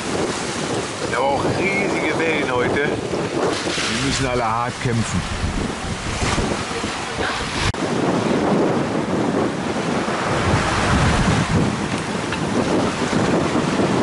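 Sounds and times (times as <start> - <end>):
waves rushing on rough sea: 0.0 - 14.0
wind buffeting microphone: 0.0 - 14.0.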